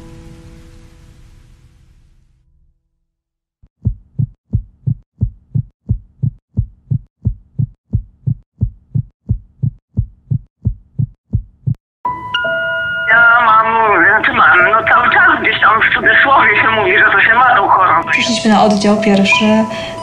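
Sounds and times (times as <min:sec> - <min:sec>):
heartbeat thumps: 0:03.8 - 0:11.8.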